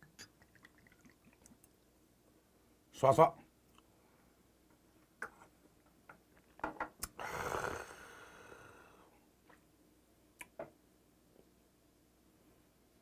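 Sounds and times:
man gulping: 0:07.0 - 0:08.1
long breathy exhale: 0:07.2 - 0:09.1.

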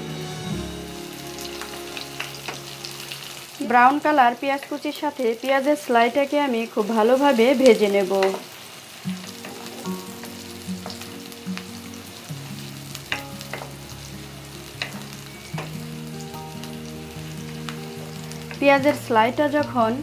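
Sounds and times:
soft background music: 0:00.0 - 0:05.1, 0:09.1 - 0:20.0
onions sizzling in a wok: 0:00.0 - 0:20.0.

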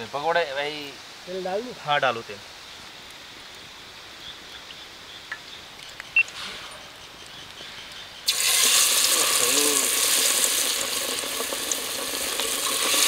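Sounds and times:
oil sizzling in a pan: 0:08.2 - 0:13.0.

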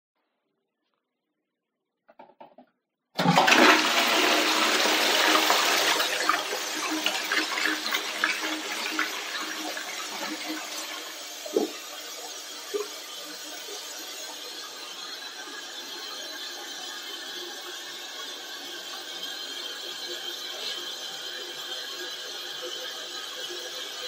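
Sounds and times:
water gurgling as bowl drains: 0:03.2 - 0:17.3
toilet flushing: 0:03.2 - 0:24.0.

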